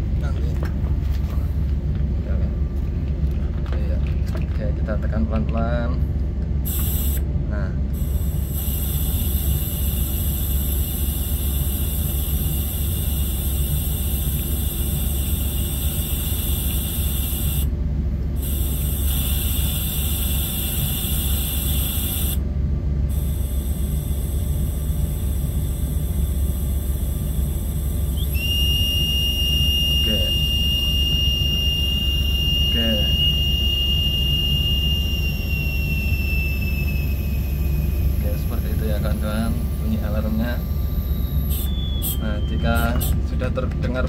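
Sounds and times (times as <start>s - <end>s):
compressed air hissing: 6.6s - 7.2s, 7.9s - 17.7s, 18.4s - 22.4s, 41.4s - 42.3s
high warning whistle: 8.0s - 17.7s, 18.4s - 22.4s, 23.1s - 43.2s.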